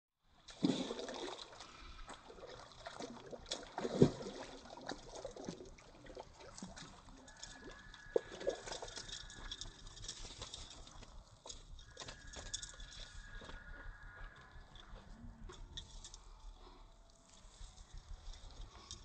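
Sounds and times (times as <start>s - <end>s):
fish splashing in water: 0.5s - 11.0s.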